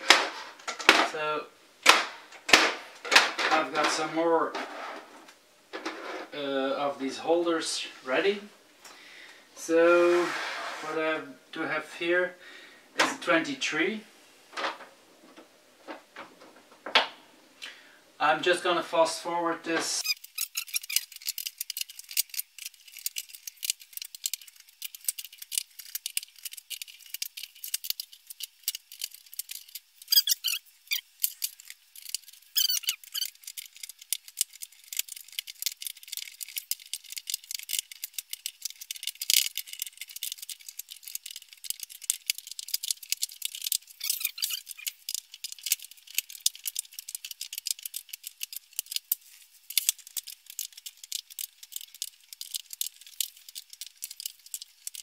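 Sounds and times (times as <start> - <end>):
battery cells clicking and rattling: 20.0 - 55.0.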